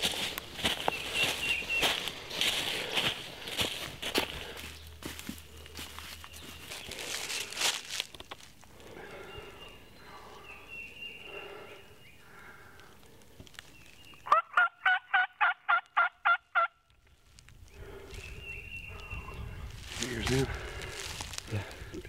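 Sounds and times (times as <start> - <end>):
turkey call yelps: 14.2 - 16.8.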